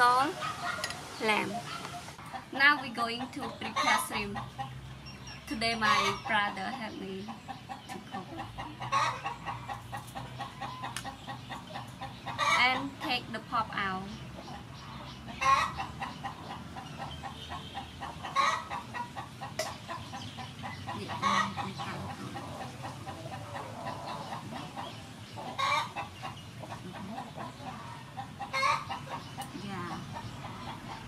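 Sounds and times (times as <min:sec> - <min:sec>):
chickens clucking: 0:00.0 - 0:31.0
loud chicken call: 0:17.2 - 0:19.3, 0:25.4 - 0:26.0.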